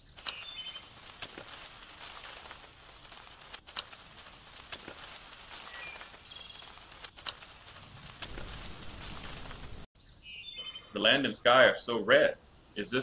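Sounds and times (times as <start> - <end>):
bird chirps: 0.0 - 1.4, 5.6 - 7.0, 8.3 - 13.0
steady outdoor hiss: 0.0 - 13.0
sharp clicks: 0.2 - 1.4, 3.4 - 9.1.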